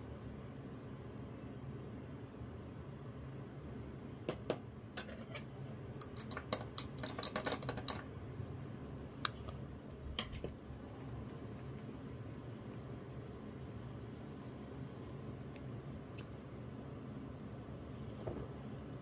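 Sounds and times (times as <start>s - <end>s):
steady low hum: 0.0s - 19.0s
clicks and clatter of handling: 6.0s - 8.0s.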